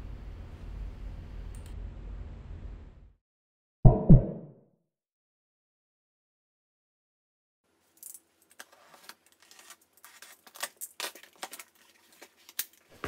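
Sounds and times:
packing tape peeled: 0:08.5 - 0:13.0.

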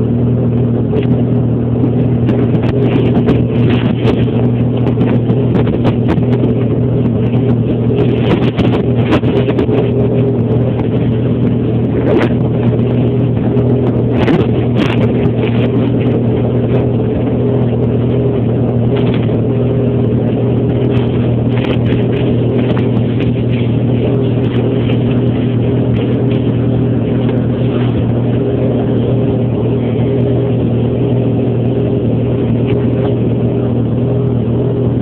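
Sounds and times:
snowmobile engine running: 0:00.0 - 0:35.0.

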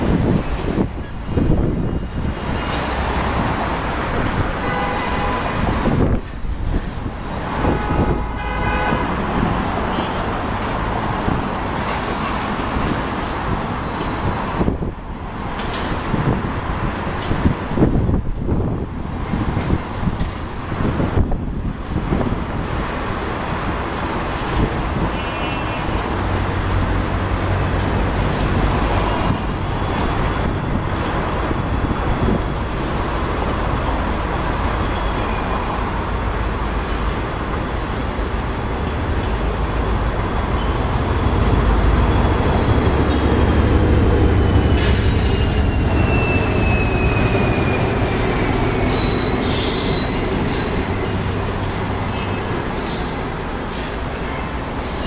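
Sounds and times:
diesel locomotive rumble: 0:00.0 - 0:55.0
train wheels rumbling on rail: 0:00.0 - 0:55.0
thin squeal falling in pitch: 0:44.4 - 0:50.7.

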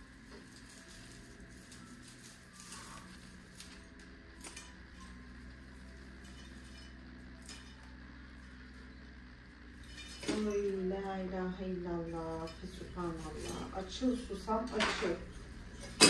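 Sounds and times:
household items clinking: 0:00.0 - 0:08.4, 0:12.0 - 0:16.0
steady low hum: 0:00.0 - 0:16.0.

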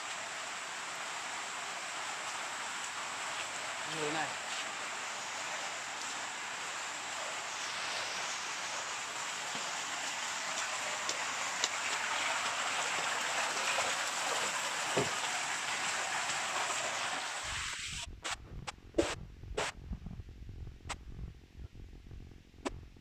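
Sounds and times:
flowing water hiss: 0:00.0 - 0:18.4, 0:19.0 - 0:19.7
low rumble: 0:18.0 - 0:23.0.

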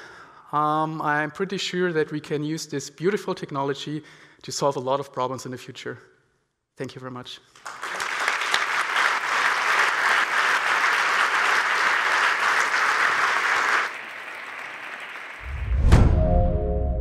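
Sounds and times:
audience applause: 0:07.6 - 0:15.8.

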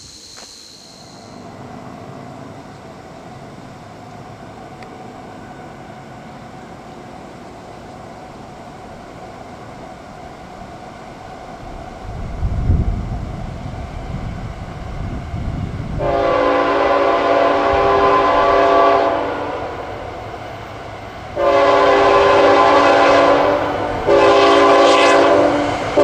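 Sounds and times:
faint steady tone: 0:00.0 - 0:11.5
train wheels rumbling on rails: 0:01.3 - 0:26.0.

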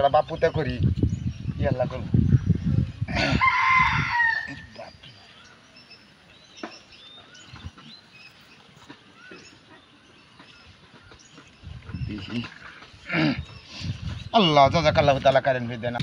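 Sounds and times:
rooster crowing: 0:03.2 - 0:04.7.

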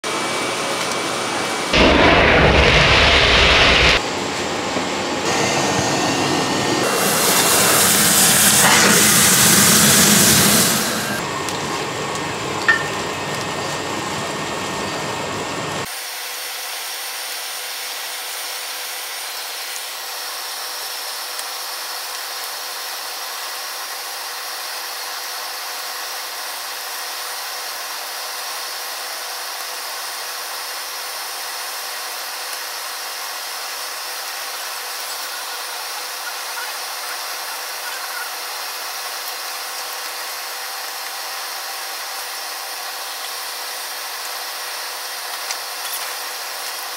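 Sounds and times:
burning matchsticks hissing: 0:06.8 - 0:11.2.

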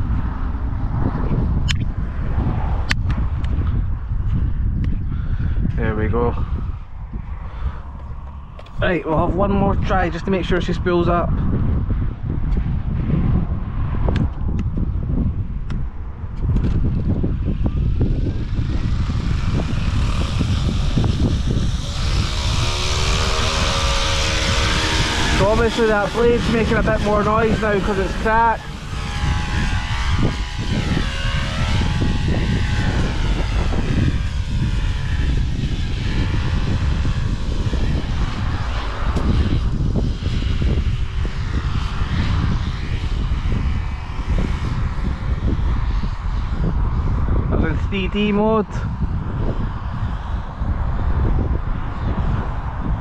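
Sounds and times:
wind buffeting microphone: 0:00.0 - 0:53.0
rc helicopter spooling up: 0:16.3 - 0:53.0
motor tone: 0:16.6 - 0:41.9.

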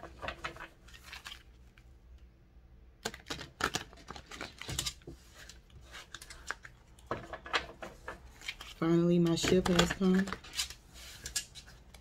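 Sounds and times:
cards being shuffled: 0:03.0 - 0:12.0.

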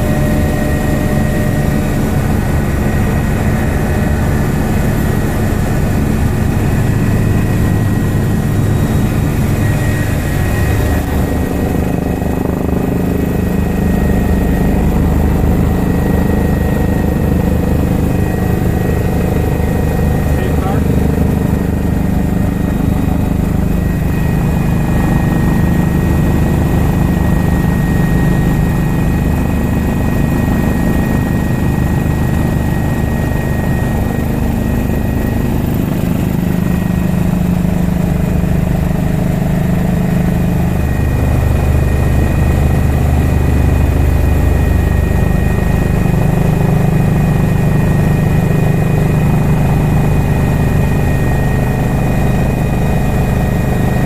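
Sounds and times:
helicopter rotor and engine drone: 0:00.0 - 0:54.0.

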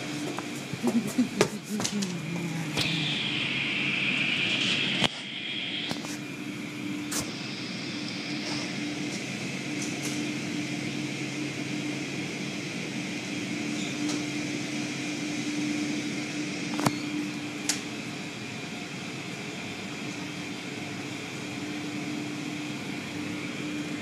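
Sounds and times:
car wash machinery and water spray: 0:00.0 - 0:24.0.

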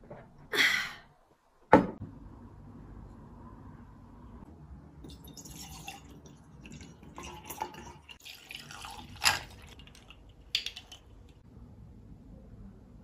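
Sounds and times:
liquid pouring into a glass jug: 0:05.0 - 0:11.2
liquid pouring over ice cubes: 0:05.1 - 0:11.2.

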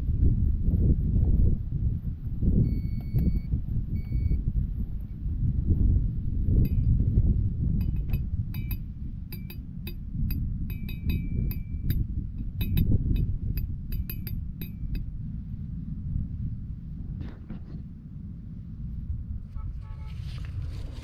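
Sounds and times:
iron rod clinking on metal pole: 0:06.6 - 0:07.0, 0:07.8 - 0:15.1.

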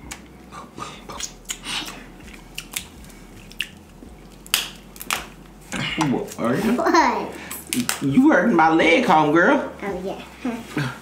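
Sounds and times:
close-up chewing: 0:00.0 - 0:06.4
crab legs cracking: 0:01.2 - 0:05.4, 0:07.7 - 0:08.1.

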